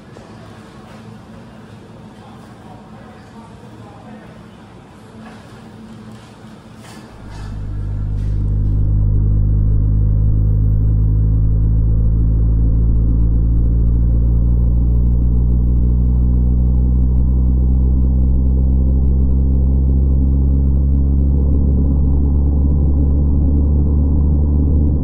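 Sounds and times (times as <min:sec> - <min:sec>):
car interior highway rumble: 0:07.0 - 0:25.0.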